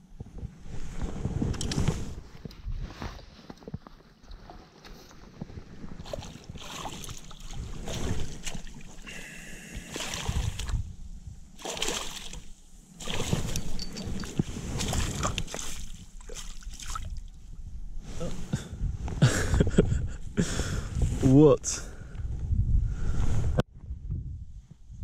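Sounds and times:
footsteps through long grass: 11.6 - 17.4
knocks and scrapes of fishing gear: 13.0 - 16.7.

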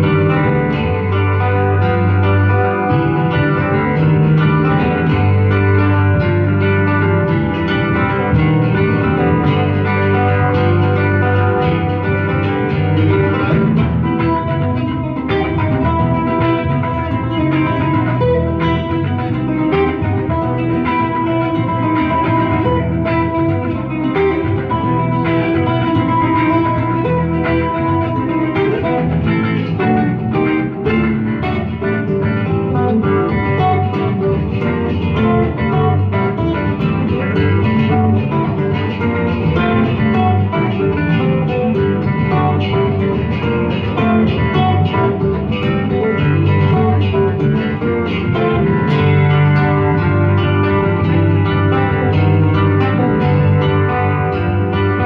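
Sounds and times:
guitar trio playing: 0.0 - 55.0.

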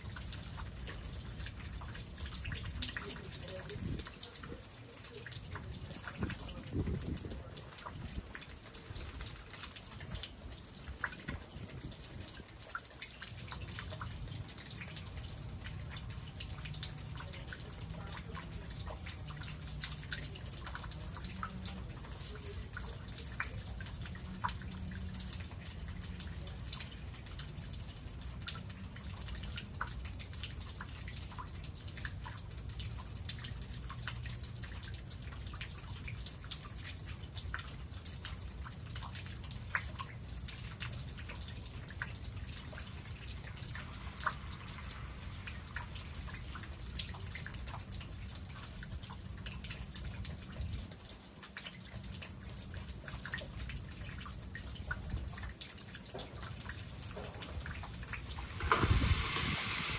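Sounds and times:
meltwater dripping: 0.0 - 59.9
low steady rumble: 56.5 - 59.9.

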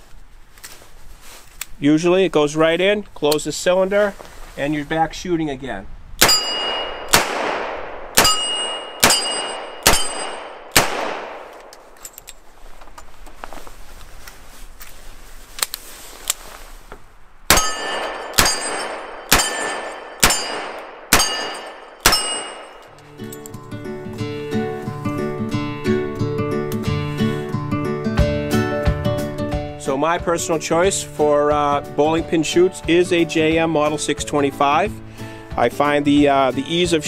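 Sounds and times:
metallic ring of steel targets: 6.2 - 7.2, 8.2 - 10.7, 17.5 - 23.5
acoustic guitar music: 23.0 - 37.0.

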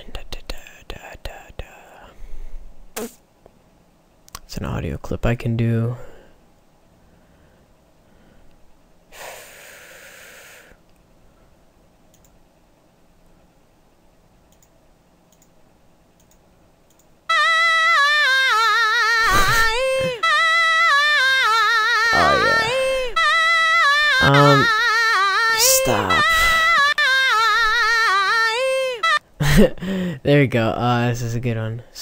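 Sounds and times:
person singing with vibrato: 17.3 - 29.2.

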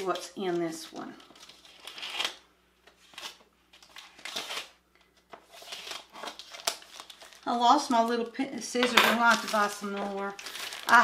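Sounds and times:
plastic wrapping rustling: 3.0 - 8.3, 9.1 - 11.0.

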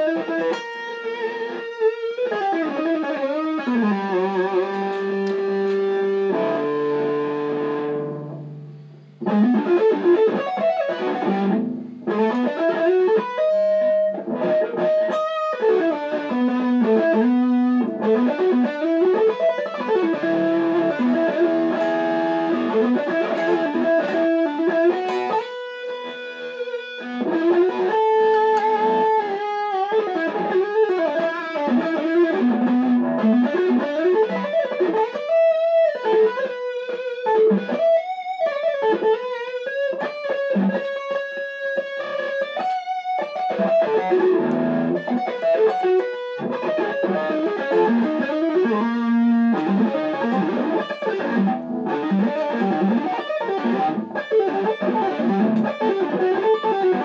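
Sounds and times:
electric guitar through amp: 0.0 - 57.0.

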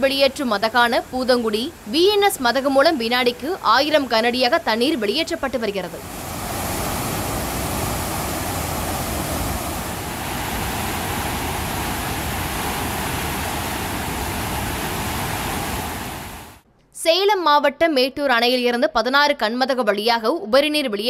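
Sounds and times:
water rushing through sluice gates: 0.0 - 16.6.

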